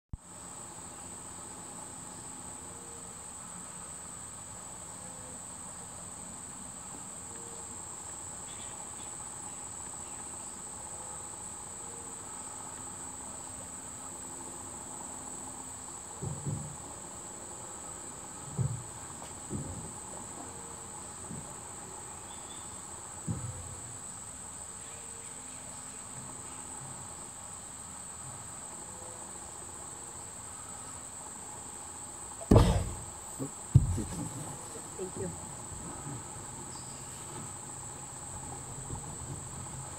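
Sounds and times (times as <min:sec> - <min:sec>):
shrill insect chorus: 0:00.2 - 0:39.9
dull low thumps: 0:32.4 - 0:33.1, 0:33.7 - 0:34.6.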